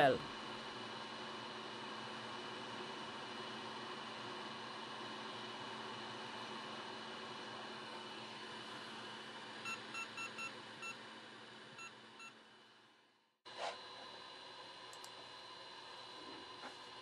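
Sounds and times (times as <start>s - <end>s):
click: 14.9s - 15.2s.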